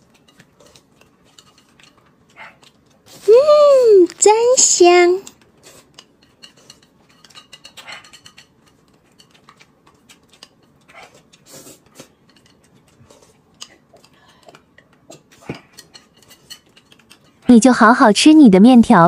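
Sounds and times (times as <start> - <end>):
chewing and slurping noodles: 0.0 - 3.3, 5.3 - 17.5
chopsticks clicking on plate: 12.3 - 17.4.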